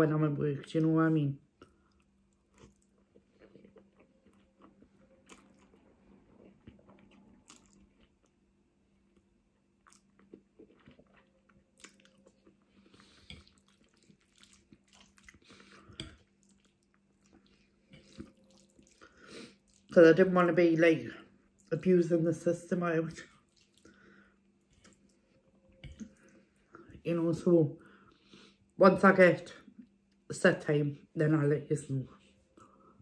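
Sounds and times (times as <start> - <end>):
chewing with wet mouth sounds: 1.6 - 20.0, 23.2 - 27.0.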